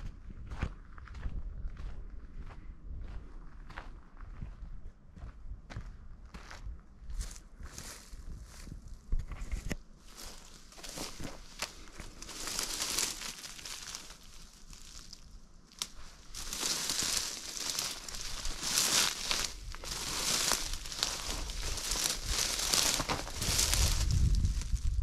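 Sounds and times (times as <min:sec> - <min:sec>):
brush crackling underfoot: 0:07.1 - 0:25.0.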